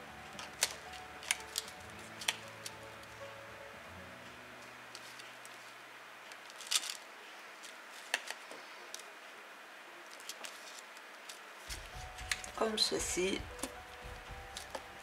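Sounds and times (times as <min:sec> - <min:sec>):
paper rustling: 0:00.3 - 0:03.1, 0:04.9 - 0:09.1, 0:10.0 - 0:15.0.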